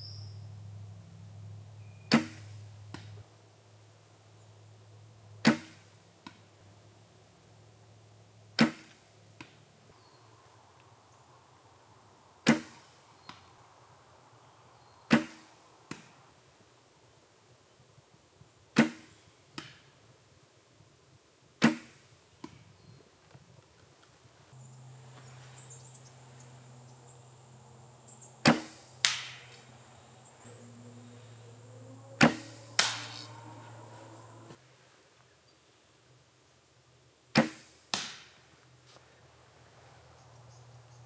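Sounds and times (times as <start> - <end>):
arrow striking target: 2.1 - 3.0, 5.4 - 5.9, 8.6 - 9.0, 12.4 - 12.9, 15.1 - 16.1, 18.8 - 19.8, 21.6 - 22.1, 28.4 - 29.7, 32.2 - 33.4, 37.3 - 38.4
bowstring slap: 8.6 - 9.5, 28.4 - 29.7, 32.2 - 33.8.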